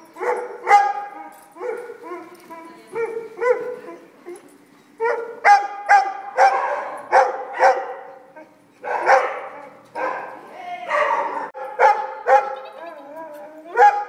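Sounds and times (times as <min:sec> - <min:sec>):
dog barking: 0:00.2 - 0:02.3, 0:03.0 - 0:04.0, 0:05.0 - 0:08.2, 0:08.8 - 0:12.8, 0:13.7 - 0:14.0.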